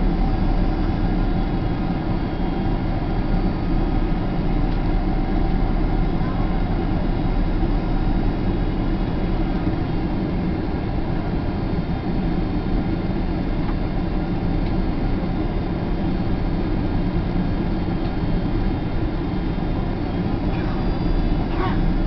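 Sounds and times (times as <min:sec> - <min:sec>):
airflow rush in cabin: 0:00.0 - 0:22.0
faint steady whine: 0:00.0 - 0:22.0
jet engines droning: 0:00.0 - 0:22.0.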